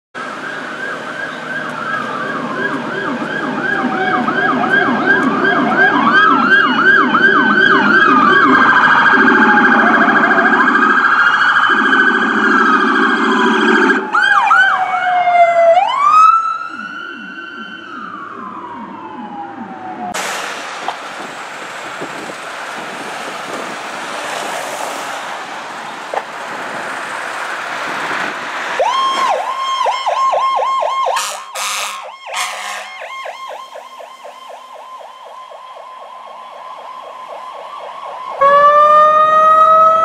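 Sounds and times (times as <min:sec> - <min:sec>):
low pulsing siren: 0:00.2 - 0:20.2, 0:27.9 - 0:40.0
police sirens wailing: 0:00.2 - 0:40.0
deep horn tone: 0:31.2 - 0:33.1.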